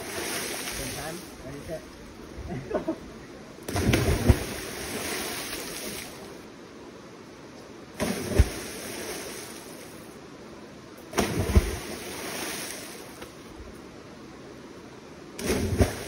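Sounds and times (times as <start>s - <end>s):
people splashing into water: 3.7s - 6.2s, 8.0s - 9.4s, 11.1s - 12.9s, 15.4s - 16.0s.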